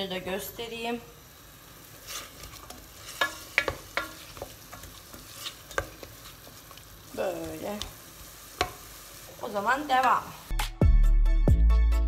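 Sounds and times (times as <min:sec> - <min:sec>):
vegetables sizzling in oil: 0:00.0 - 0:10.6
utensil knocking against pot: 0:03.2 - 0:04.9.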